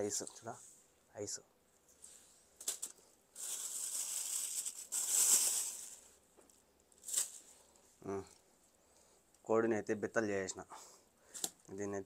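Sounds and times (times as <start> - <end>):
crinkling rustle of raw chicken: 2.6 - 6.2.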